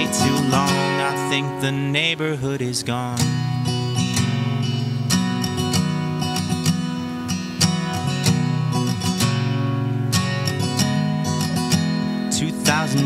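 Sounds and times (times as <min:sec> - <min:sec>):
acoustic guitar strumming: 0:00.0 - 0:13.0.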